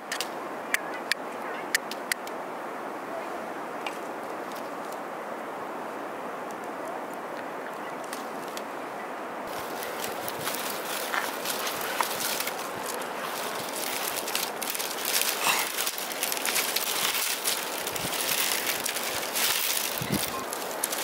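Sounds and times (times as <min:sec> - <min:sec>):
rustle: 0:00.0 - 0:21.0
bamboo strips clicking and scraping: 0:09.5 - 0:21.0.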